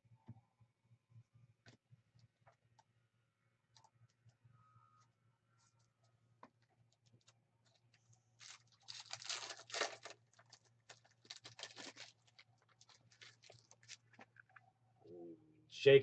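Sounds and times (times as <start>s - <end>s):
cards clicking and rustling: 7.1s - 14.4s
foil pack tearing and crinkling: 8.4s - 14.3s.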